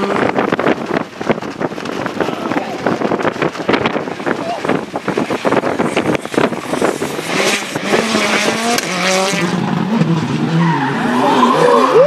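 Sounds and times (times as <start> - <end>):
tyre noise on road: 0.0 - 12.0
rally car engine revving hard: 3.5 - 12.0.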